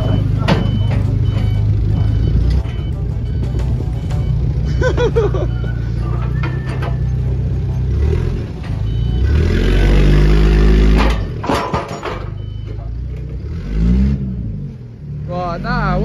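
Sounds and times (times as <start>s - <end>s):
metal clanks: 0.0s - 5.0s, 5.6s - 7.6s, 10.9s - 12.7s
diesel engine revving: 0.0s - 11.5s, 12.3s - 16.0s.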